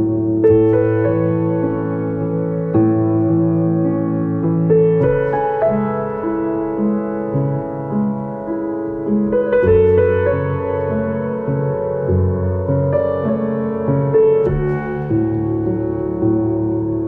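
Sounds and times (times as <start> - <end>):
slow relaxing piano music: 0.0 - 17.0.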